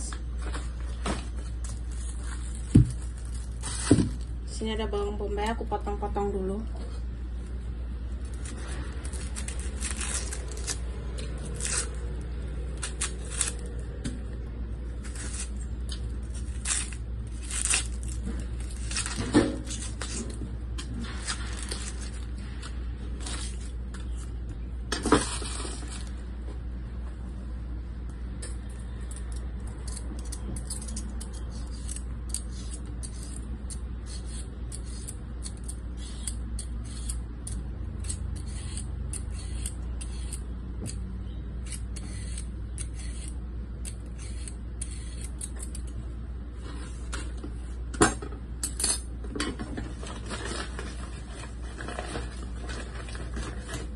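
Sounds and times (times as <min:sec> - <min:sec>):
steady low hum: 0:00.0 - 0:53.9
knife peeling onion skin: 0:08.1 - 0:14.0, 0:14.9 - 0:22.3, 0:28.8 - 0:46.0
knife scraping carrot: 0:28.9 - 0:40.5, 0:41.6 - 0:45.9.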